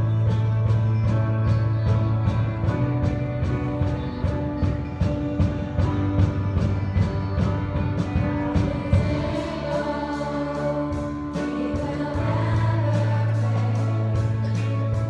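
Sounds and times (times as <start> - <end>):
drums and cymbals: 0.0 - 15.0
electric guitars: 0.0 - 15.0
young voices singing together: 8.1 - 15.0.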